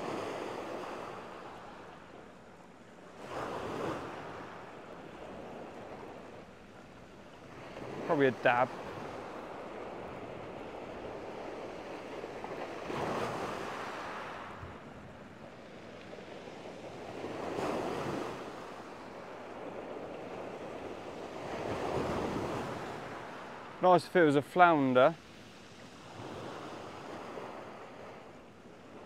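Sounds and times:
waves breaking on shingle beach: 0:07.7 - 0:09.2.

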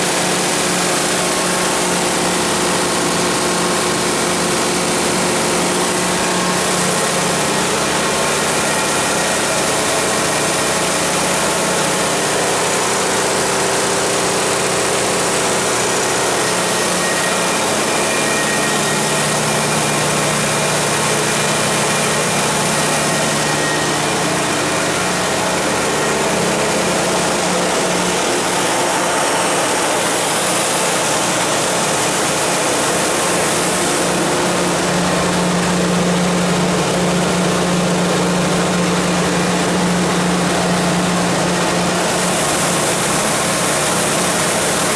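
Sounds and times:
generator engine running: 0:00.0 - 0:44.9.

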